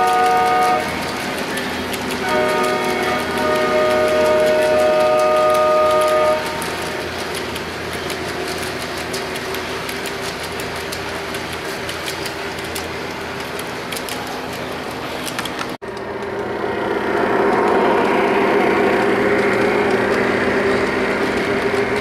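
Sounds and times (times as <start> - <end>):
toy train electronic horn chord: 0.0 - 1.2, 2.1 - 6.9
metal wheels clicking on track joints: 0.0 - 16.4, 17.3 - 22.0
train cars rumbling on track: 0.0 - 22.0.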